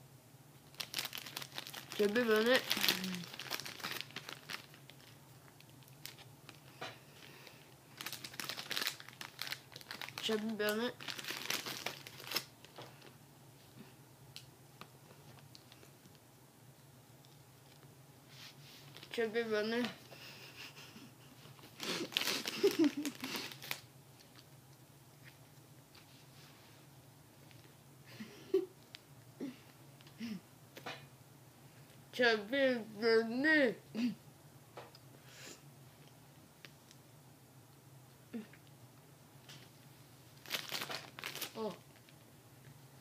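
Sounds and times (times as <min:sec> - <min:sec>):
plastic bag crinkling: 0:00.6 - 0:13.1, 0:21.6 - 0:24.5, 0:40.4 - 0:42.2.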